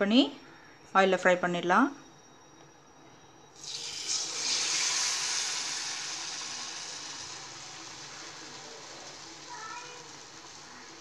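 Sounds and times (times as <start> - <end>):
hot oil sizzling: 3.6 - 11.0.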